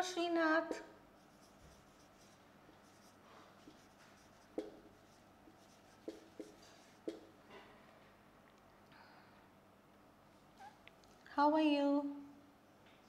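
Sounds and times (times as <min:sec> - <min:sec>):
marker scratching on whiteboard: 0:01.2 - 0:07.4
marker squeaks: 0:10.6 - 0:10.8.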